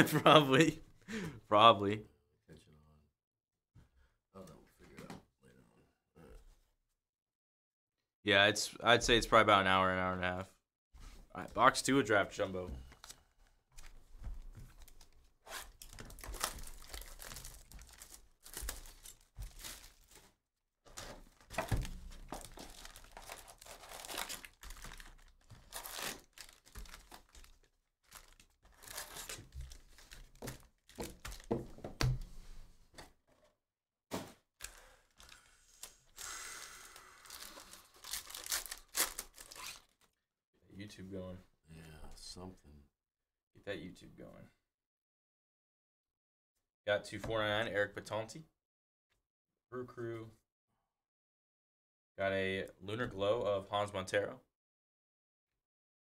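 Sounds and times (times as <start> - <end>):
card packs ripping and crinkling: 14.7 - 20.3, 20.9 - 31.6, 36.9 - 40.0.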